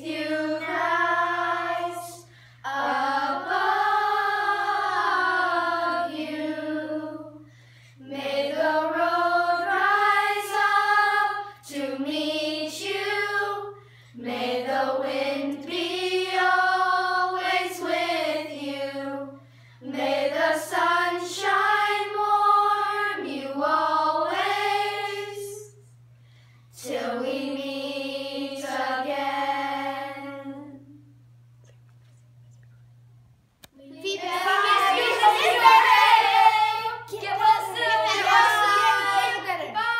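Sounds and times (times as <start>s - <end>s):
children singing unaccompanied: 0.0s - 7.4s, 34.1s - 39.5s
faint low hum: 0.0s - 39.9s.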